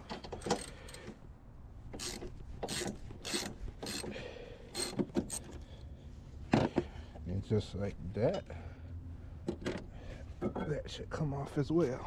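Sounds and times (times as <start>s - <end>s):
socket ratchet pawl rasping: 0.0s - 1.1s, 2.0s - 4.1s, 4.7s - 5.6s.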